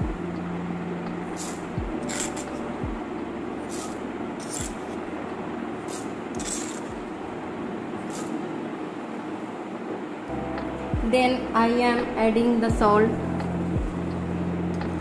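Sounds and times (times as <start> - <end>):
steady hiss: 0.0 - 5.0.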